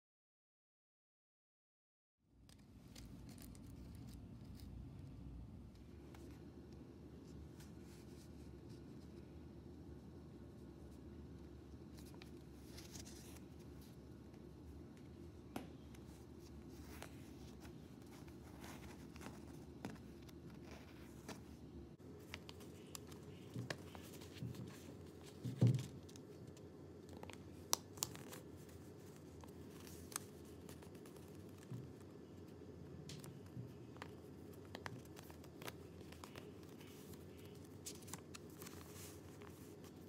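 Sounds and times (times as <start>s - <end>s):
steady low hum: 2.3s - 40.0s
paper folding and creasing: 2.5s - 5.1s, 11.9s - 14.0s, 15.8s - 32.5s, 33.1s - 40.0s.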